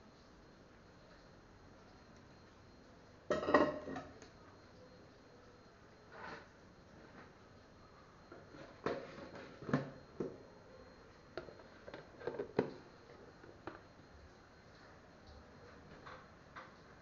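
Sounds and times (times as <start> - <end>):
cookware knocking and clinking: 3.3 - 4.1.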